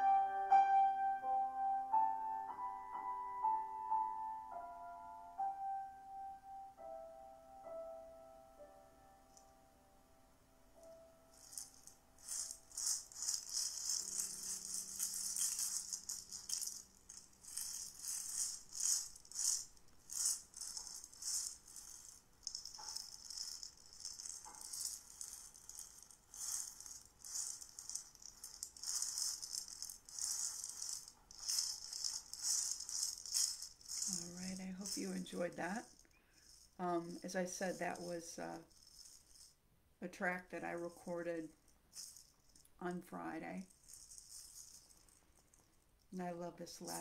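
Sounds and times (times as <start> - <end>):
rattle shaken: 10.8 - 39.6, 40.8 - 47.0.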